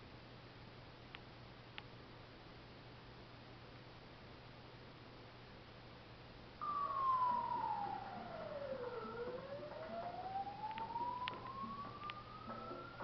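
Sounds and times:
ambulance siren wailing: 6.6 - 13.0.

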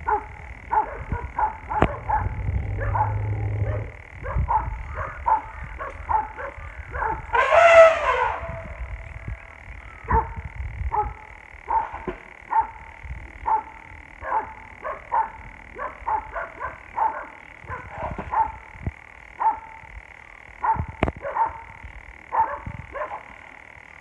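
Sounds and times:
dogs barking: 0.0 - 7.3, 10.0 - 18.7, 19.4 - 19.8, 20.6 - 23.4
loud drawn-out cry: 1.8 - 4.2.

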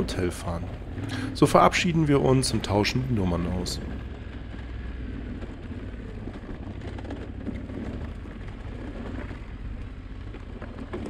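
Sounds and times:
motorcycle engine running: 0.0 - 11.0
tyres on gravel: 0.0 - 11.0
wind: 0.0 - 11.0.

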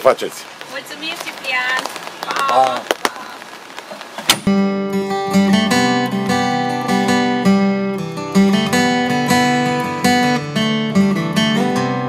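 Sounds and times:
acoustic guitar strumming: 4.3 - 12.0.

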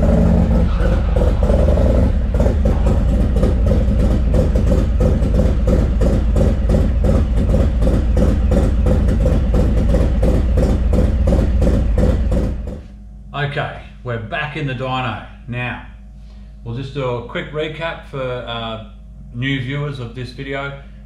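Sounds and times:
motorcycle engine idling: 0.0 - 13.3.

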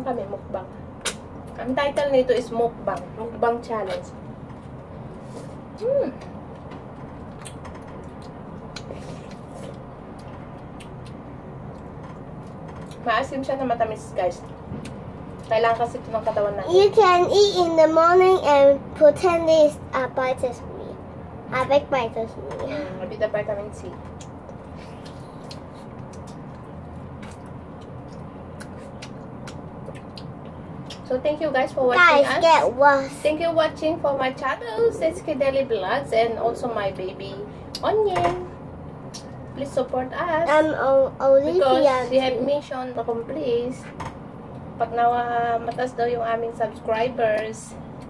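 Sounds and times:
low room hum: 0.0 - 48.0
wet mouth clicks and smacks: 1.0 - 1.2, 24.1 - 31.0
people chewing pineapple: 3.8 - 13.0, 24.1 - 31.1
biting and chewing fruit: 24.1 - 31.0.

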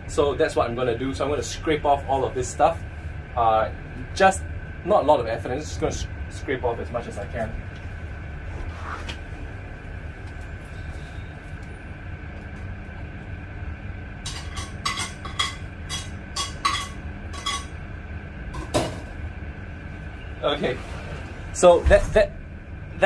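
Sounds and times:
low background hum: 0.0 - 23.0
scraping and clinks on plate: 14.3 - 17.8.

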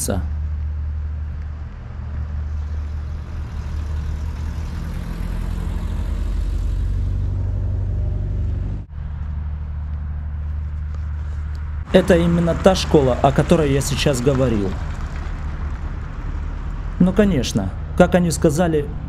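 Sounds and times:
low outdoor rumble with hiss: 8.4 - 19.0.

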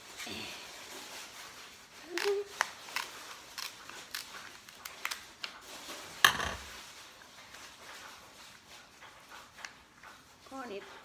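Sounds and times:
shears snipping crab shell: 2.1 - 5.2.

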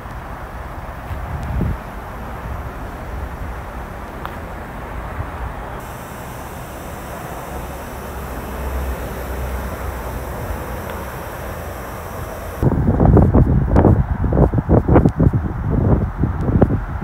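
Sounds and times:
heavy vehicle engines rumbling: 0.0 - 12.7.

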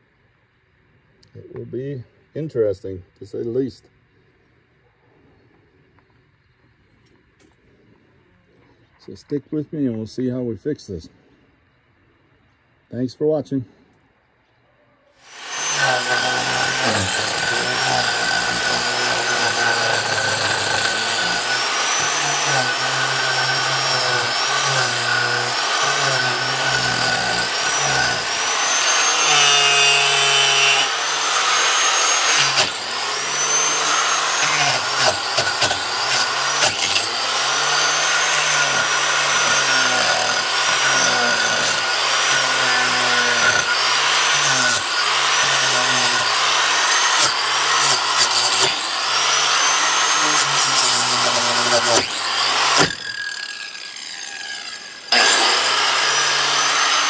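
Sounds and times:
high-pitched tool whine: 15.2 - 57.0
power tool motor under load: 15.2 - 57.0.

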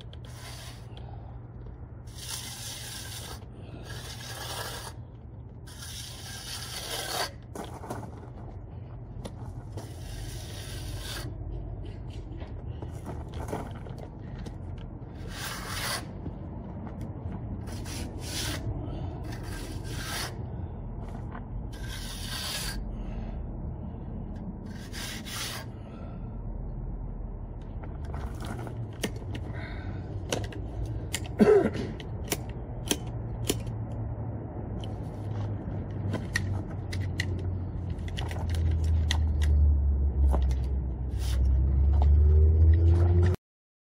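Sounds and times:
low rumble: 0.0 - 43.4
trowel scraping wet cement: 0.2 - 0.9, 2.1 - 5.0, 5.6 - 8.2, 9.7 - 12.1, 15.2 - 16.2, 17.6 - 18.7, 19.3 - 20.4, 21.7 - 22.8, 24.7 - 25.7.

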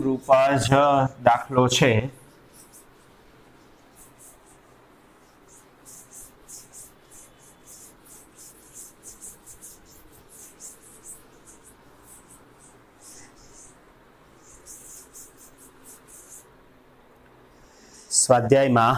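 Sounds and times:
pen scratching while writing: 2.3 - 13.8, 14.4 - 16.5.

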